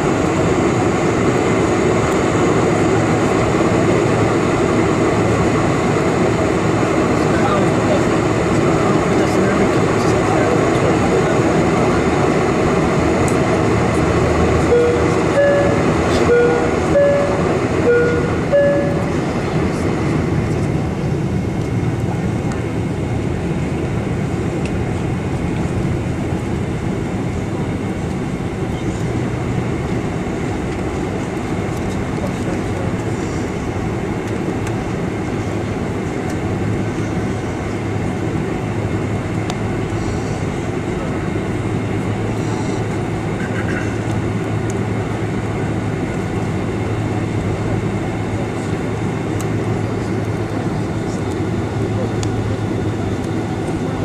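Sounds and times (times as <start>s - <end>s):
jet engine roar inside cabin: 0.0s - 54.0s
two-pitch alternating notes: 14.6s - 19.3s.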